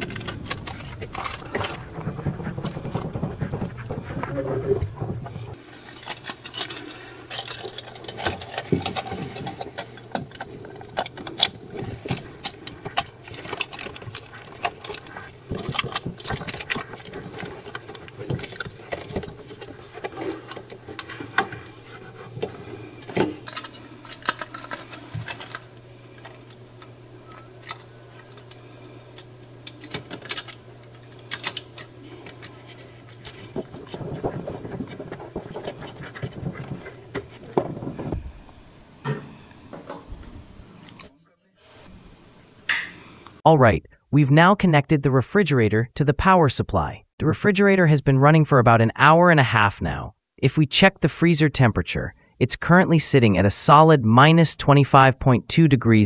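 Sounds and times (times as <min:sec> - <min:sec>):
foil tape crinkling and crackling: 0:00.0 - 0:38.8
steady low hum: 0:00.0 - 0:44.1.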